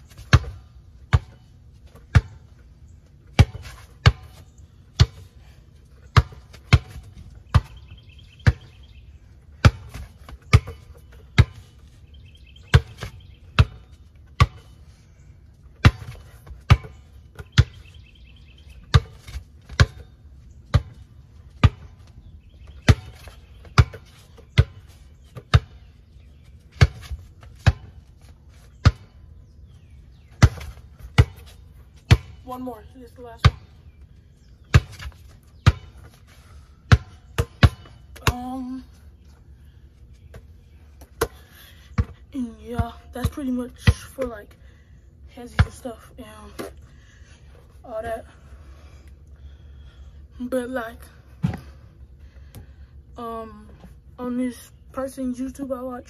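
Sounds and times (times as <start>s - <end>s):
basketball bouncing: 0.1s - 2.5s, 3.2s - 5.3s, 6.0s - 8.8s, 9.5s - 11.8s, 12.6s - 14.7s, 15.7s - 17.8s, 18.8s - 25.9s, 26.7s - 29.2s, 30.3s - 32.6s, 33.3s - 33.8s, 34.6s - 36.1s, 36.8s - 38.8s, 40.3s - 44.4s, 45.4s - 46.7s.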